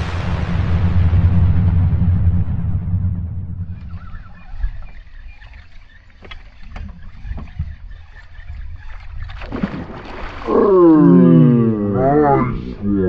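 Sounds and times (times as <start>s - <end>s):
wind and water noise: 0.0s - 13.0s
fish splash: 9.3s - 10.8s.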